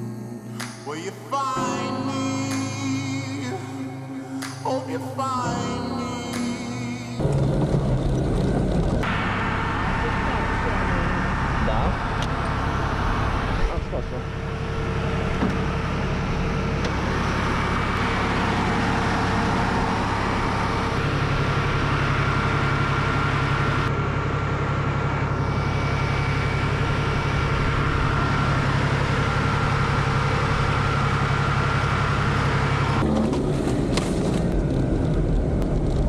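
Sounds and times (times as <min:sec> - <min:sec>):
vehicle driving: 0:00.4 - 0:36.0
engine idling: 0:01.6 - 0:36.0.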